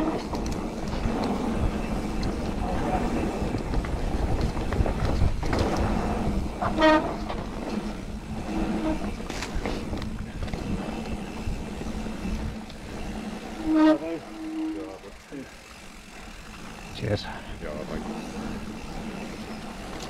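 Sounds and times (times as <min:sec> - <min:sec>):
wind buffeting microphone: 0:00.0 - 0:14.3
bike tyre rumble and rattle: 0:00.0 - 0:20.0
loud honking tones: 0:13.5 - 0:15.0.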